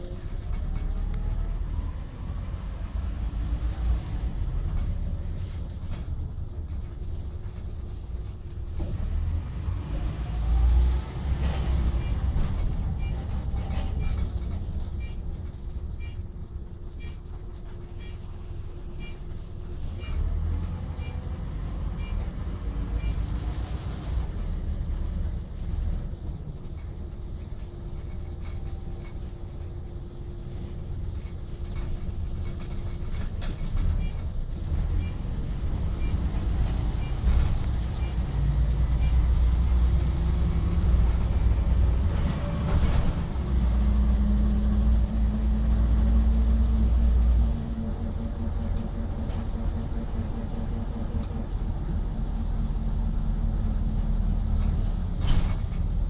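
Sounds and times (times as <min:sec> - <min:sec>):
bus engine and road rumble: 0:00.0 - 0:56.0
rattles and knocks: 0:26.2 - 0:35.1, 0:48.4 - 0:56.0.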